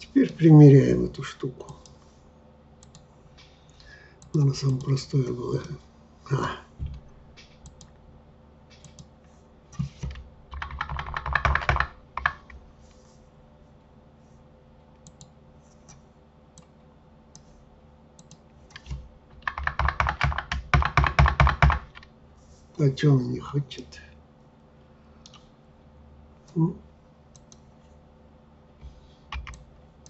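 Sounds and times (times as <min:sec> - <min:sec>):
keyboard keystrokes: 0:09.8 - 0:12.6, 0:18.2 - 0:22.1, 0:29.3 - 0:29.7.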